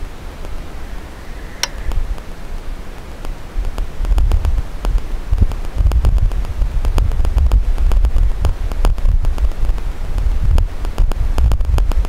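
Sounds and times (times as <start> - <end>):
wind buffeting microphone: 0.0 - 12.0
faint clicks: 1.5 - 12.0.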